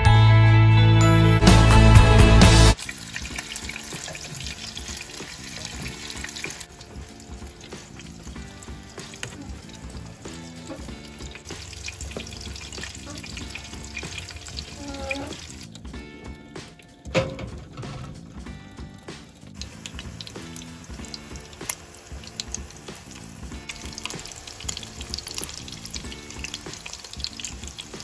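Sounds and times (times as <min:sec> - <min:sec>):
background music: 0:00.0 - 0:28.0
water splashing in a sink: 0:02.7 - 0:28.0
water bubbling in a pot: 0:02.8 - 0:17.0, 0:18.4 - 0:28.0.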